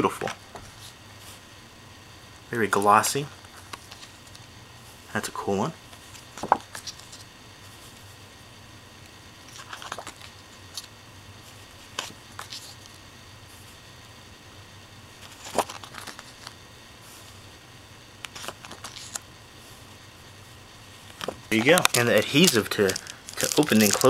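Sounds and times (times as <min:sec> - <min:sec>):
photo prints rustling and sliding: 0:02.8 - 0:04.5, 0:05.9 - 0:08.2, 0:09.4 - 0:13.8, 0:15.2 - 0:17.5, 0:18.2 - 0:19.9, 0:20.9 - 0:24.0.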